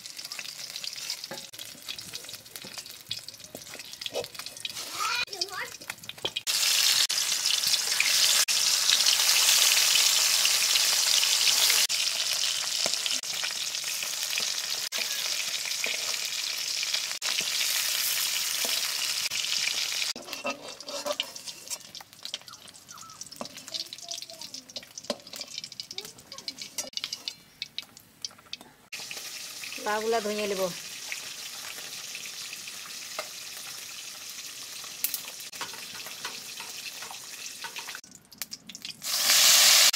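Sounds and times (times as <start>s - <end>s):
fish sizzling in hot oil: 0.0s - 39.9s
spatula scraping and knocking pan: 20.2s - 22.4s, 35.5s - 38.0s.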